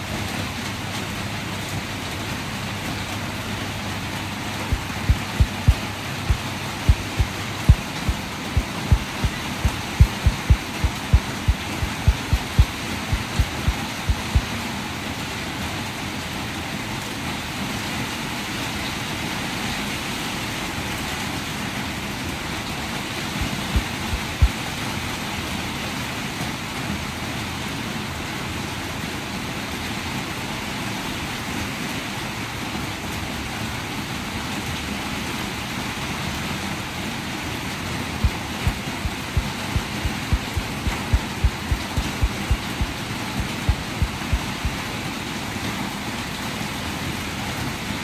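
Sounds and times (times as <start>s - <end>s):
steady rain hiss: 0.0s - 48.0s
low thumps: 4.7s - 14.4s, 38.2s - 44.8s.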